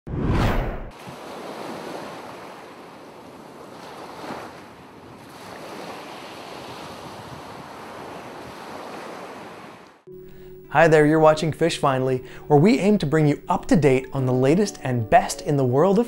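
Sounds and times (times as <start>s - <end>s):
ocean waves washing: 0.5s - 16.0s.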